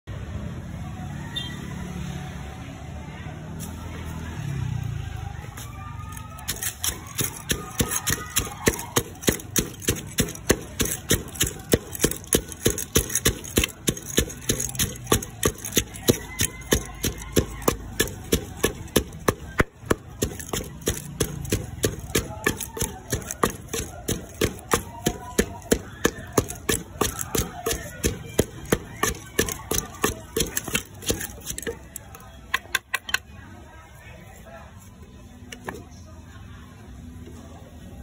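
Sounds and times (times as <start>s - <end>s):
pestle pounding in mortar: 6.3s - 33.2s.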